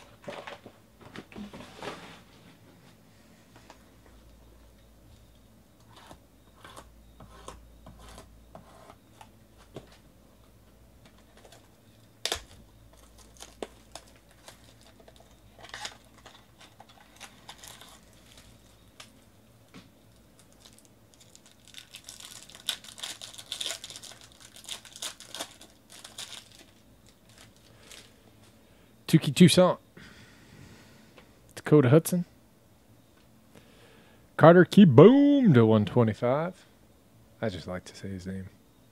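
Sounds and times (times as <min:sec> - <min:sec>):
packaging clicks and rustles: 0:11.0 - 0:19.2, 0:20.1 - 0:28.2
foil pack crinkling and tearing: 0:11.2 - 0:19.2, 0:20.1 - 0:28.2.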